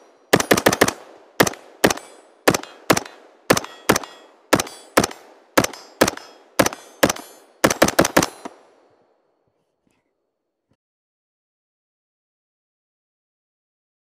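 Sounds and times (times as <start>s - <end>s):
rifle gunshots with echo: 0.0s - 8.8s.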